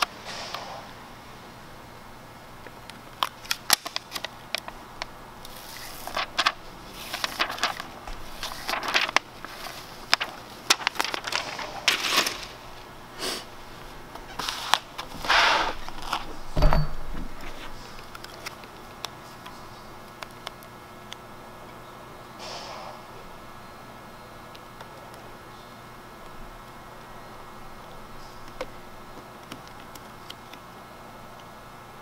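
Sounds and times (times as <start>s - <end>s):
paper crackling and rustling: 3.2s - 4.8s, 5.4s - 16.6s, 17.2s - 20.7s.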